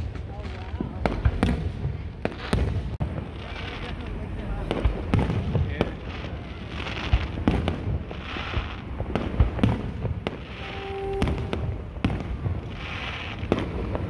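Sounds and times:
fireworks booming: 0.0 - 14.0.

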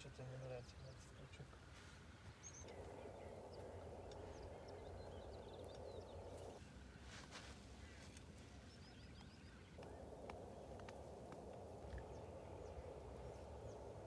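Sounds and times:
soft bird chirps: 0.0 - 14.0.

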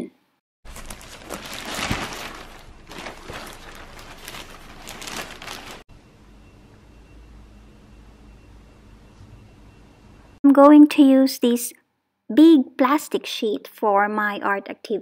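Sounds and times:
plastic bag rustling: 0.7 - 5.9.

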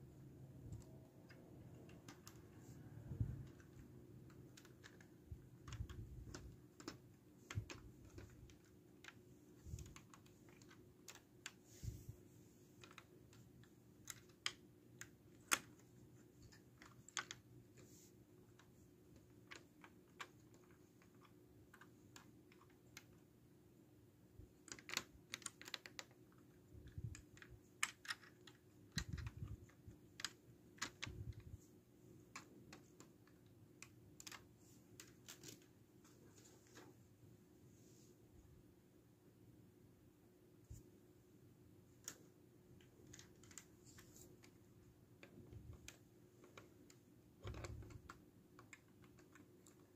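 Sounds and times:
plastic bricks clicking: 24.6 - 31.6.

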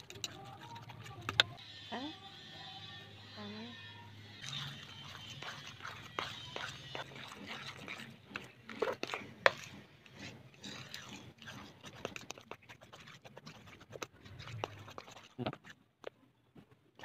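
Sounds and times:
hands squelching sticky batter: 4.4 - 17.0.

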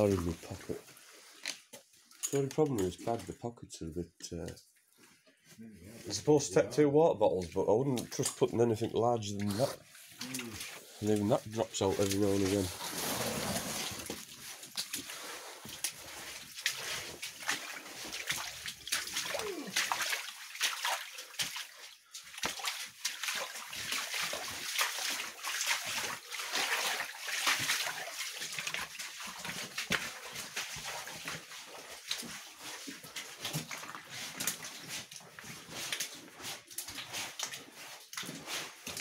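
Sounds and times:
footsteps splashing through water: 9.4 - 39.0.

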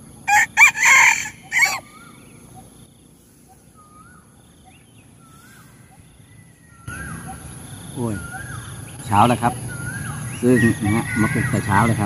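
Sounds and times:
rooster crowing: 0.3 - 2.0, 10.8 - 11.9.

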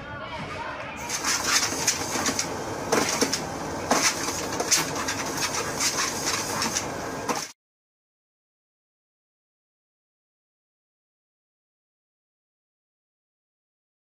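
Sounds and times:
treadmill belt running: 1.0 - 7.5.

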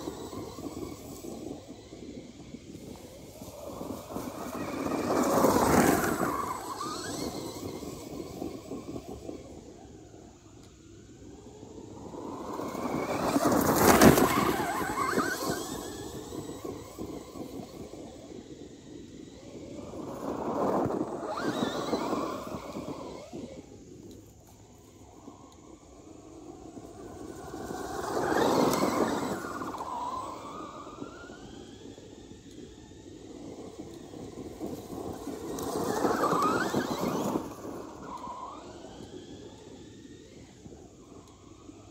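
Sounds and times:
electric motor whining: 0.0 - 41.9
tyres on gravel: 2.9 - 10.0, 11.3 - 18.1
tyres tearing through dirt: 12.4 - 17.4.

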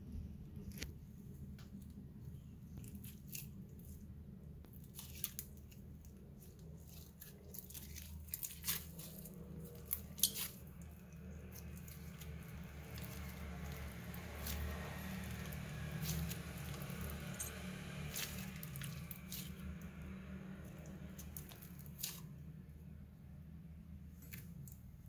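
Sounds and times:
faint low hum: 0.0 - 25.0
slime squished by hand: 2.7 - 22.4.

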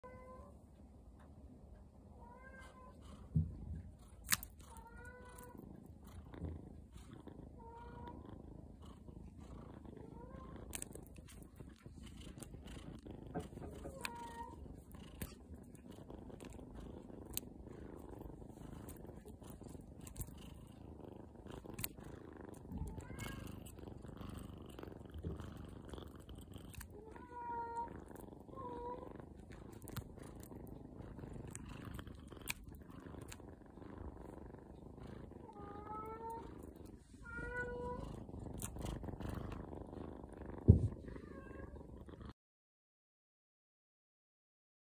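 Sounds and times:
kitten purring: 0.0 - 42.4
kitten mewing: 10.1 - 15.8.

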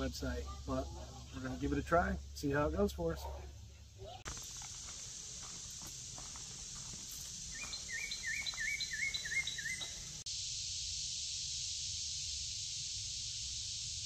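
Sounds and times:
insect chorus drone: 0.0 - 14.0
bird singing: 6.8 - 10.2.

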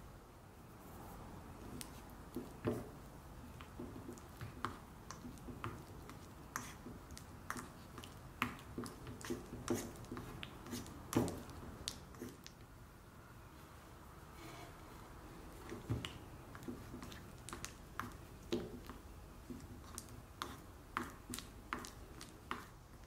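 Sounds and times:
butter squishing: 3.4 - 12.6, 15.5 - 23.0.

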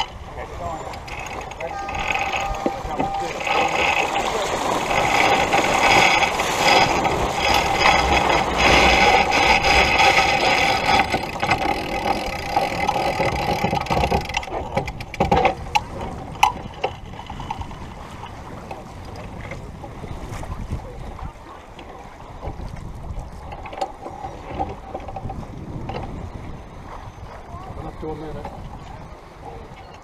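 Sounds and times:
water: 0.0 - 30.0
wind: 0.0 - 30.0
winch ratcheting clicks: 0.8 - 4.2, 4.8 - 17.8.

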